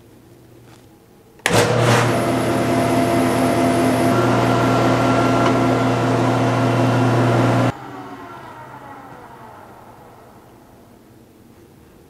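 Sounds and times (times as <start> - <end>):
planer humming: 1.4 - 11.0.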